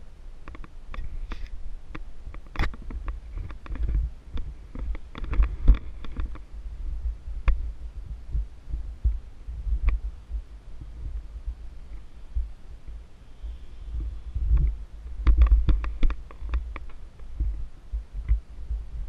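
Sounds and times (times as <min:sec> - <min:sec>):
low thumps and rubbing: 0:02.4 - 0:19.0.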